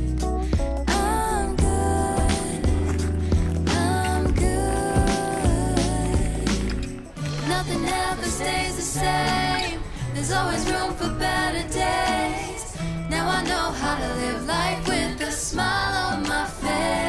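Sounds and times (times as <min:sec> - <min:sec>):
bass line: 0:00.0 - 0:09.4
woman singing pop song: 0:00.0 - 0:17.0.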